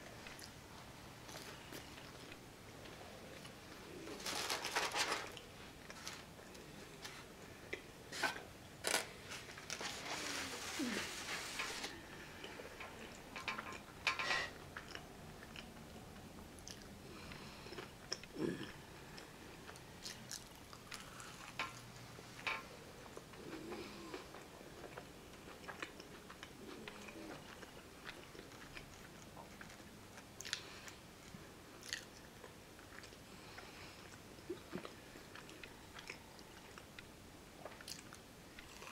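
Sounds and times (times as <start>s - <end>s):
chewing crunchy onion ring: 14.5s - 22.0s, 23.0s - 38.9s.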